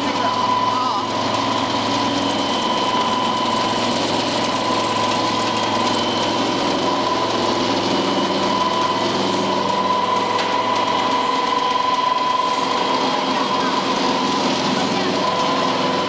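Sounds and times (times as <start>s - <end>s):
pellet mill humming and whining: 0.0s - 16.0s.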